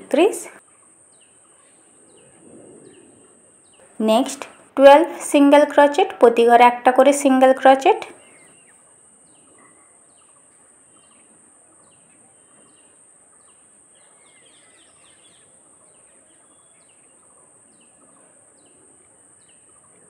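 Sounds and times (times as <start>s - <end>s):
steady high-pitched hiss: 0.0s - 20.0s
small birds chirping: 7.8s - 20.0s.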